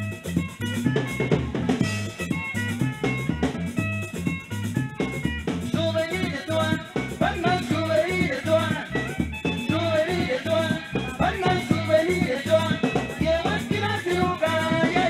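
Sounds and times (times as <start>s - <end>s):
drum kit and congas beat: 0.0s - 15.0s
live band dance music: 0.0s - 15.0s
person singing: 5.7s - 15.0s.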